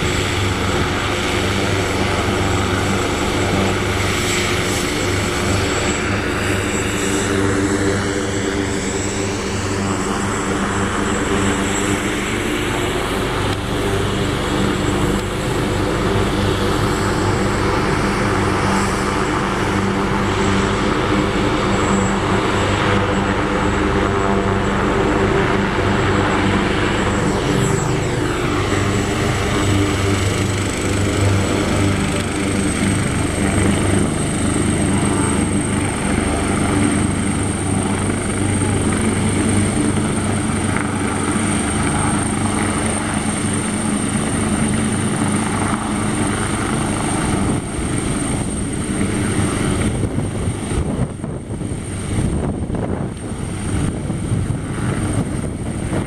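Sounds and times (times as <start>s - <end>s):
helicopter rotor rumble: 0.0s - 56.0s
helicopter turbine whine: 0.0s - 56.0s.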